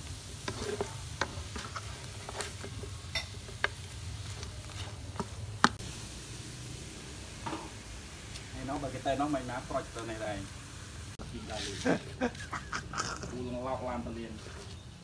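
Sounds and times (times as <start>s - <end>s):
chicken sizzling in frying pan: 0.0s - 14.1s
spatula scraping and knocking pan: 0.2s - 5.8s.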